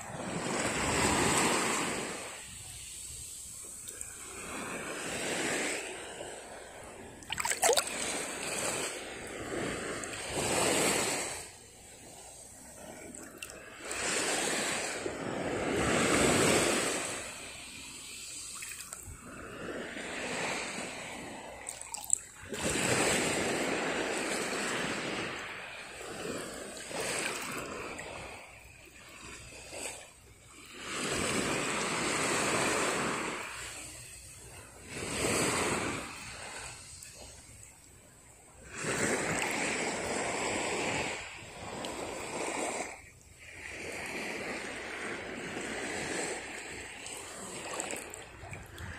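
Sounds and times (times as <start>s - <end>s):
shallow water sloshing: 0.1s - 17.3s, 18.1s - 28.2s, 42.8s - 48.9s.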